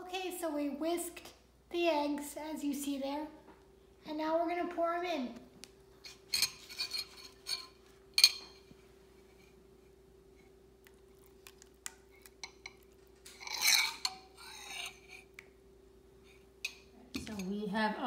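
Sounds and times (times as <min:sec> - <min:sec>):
spoon scraping bowl: 0:06.0 - 0:08.4, 0:11.2 - 0:15.3
metal spoon clinking ceramic bowl: 0:06.2 - 0:08.7, 0:12.4 - 0:15.2.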